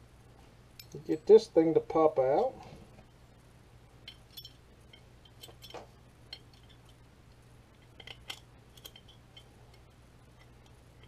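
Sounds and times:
low steady hum: 0.0 - 11.0
small steel parts clicking: 0.8 - 1.0, 4.0 - 11.0.

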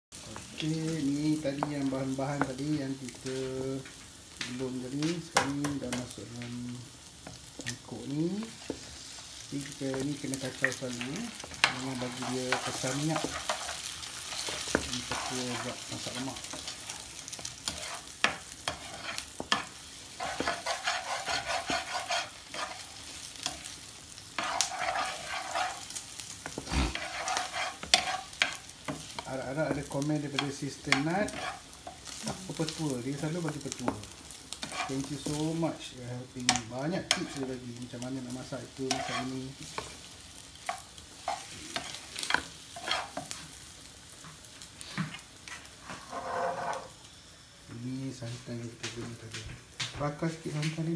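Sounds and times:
wooden spoon stirring in pot: 7.2 - 23.8, 24.4 - 43.5
spoon scraping and knocking pot: 17.7 - 22.9, 24.4 - 25.8, 26.4 - 29.2, 30.4 - 31.6, 45.5 - 46.9.

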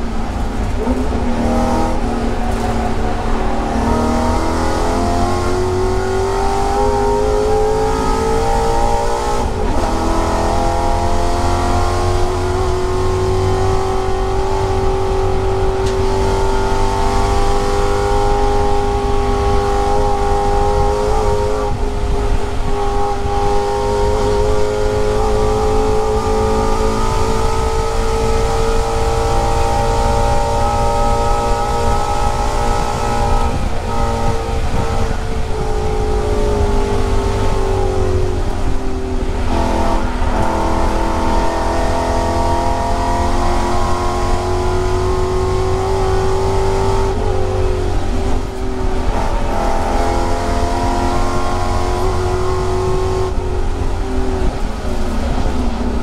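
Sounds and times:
race car engine at full throttle: 0.0 - 56.0.

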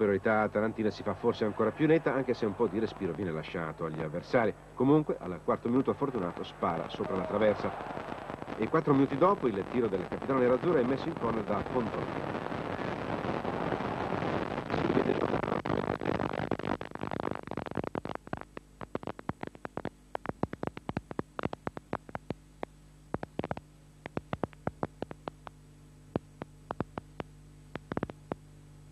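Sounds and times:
low steady hum: 0.0 - 28.9
stadium crowd noise: 0.4 - 3.5, 5.8 - 9.1
sharp crackling clicks: 6.1 - 28.5.

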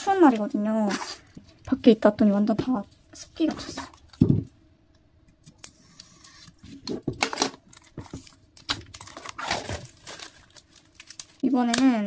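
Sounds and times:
hands handling packaging: 5.4 - 12.0.

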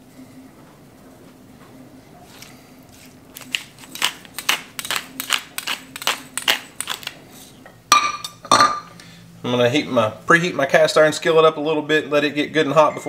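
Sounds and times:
pepper grinder crunching: 2.3 - 7.2.

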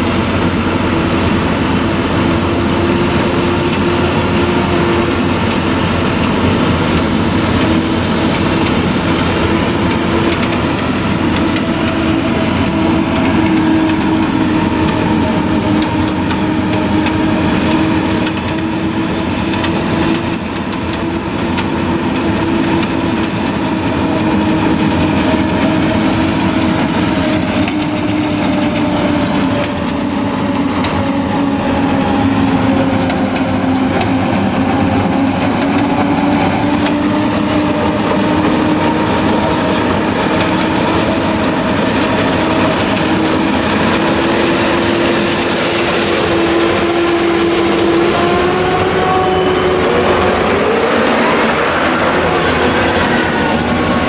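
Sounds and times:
forage harvester machinery hum: 0.0 - 54.0.

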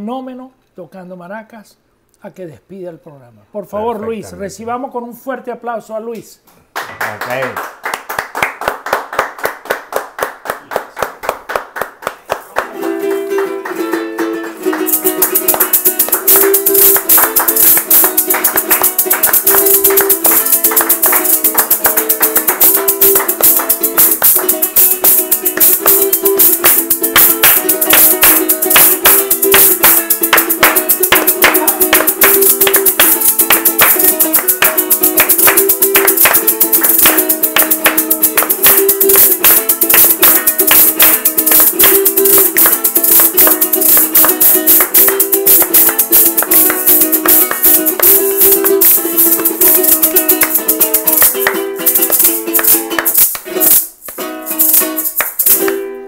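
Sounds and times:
hands clapping in rhythm: 6.7 - 55.8
small guitar strumming chords: 12.7 - 56.0
maracas shaken fast: 14.6 - 55.8.

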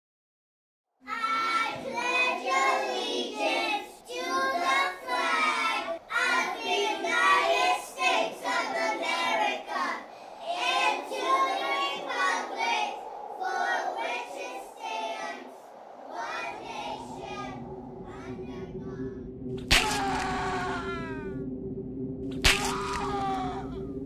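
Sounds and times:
child singing: 1.1 - 19.0.

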